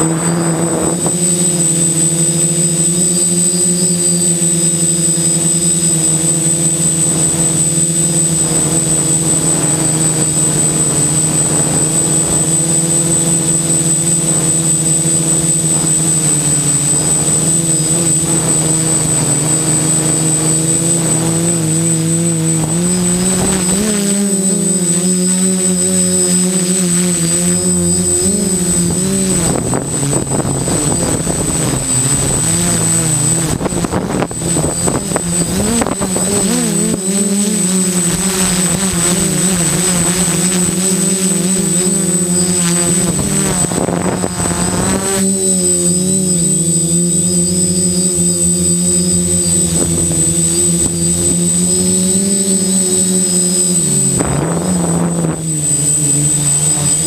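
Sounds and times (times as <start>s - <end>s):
drone motors buzzing: 0.0s - 57.0s
thin high whine: 0.0s - 57.0s
gusty rushing wind: 27.5s - 37.1s.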